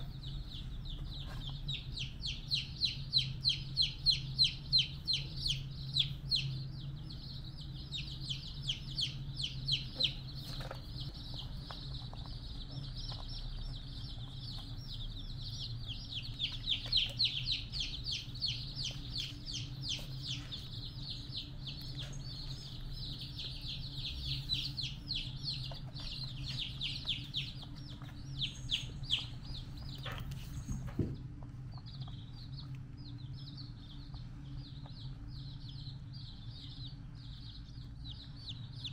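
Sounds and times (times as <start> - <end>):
low steady hum: 0.0 - 38.9
rapid high-pitched chirping: 0.0 - 38.9.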